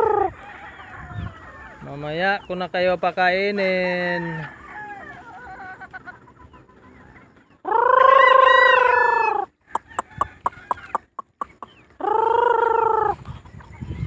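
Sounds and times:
rooster crowing: 0:00.1 - 0:01.9, 0:03.8 - 0:05.7, 0:07.9 - 0:10.9.

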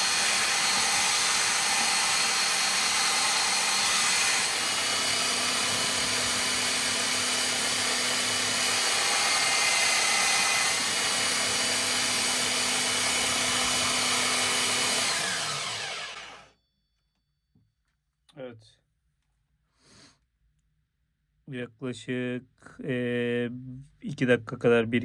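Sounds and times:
belt sander whining: 0:00.0 - 0:16.5.

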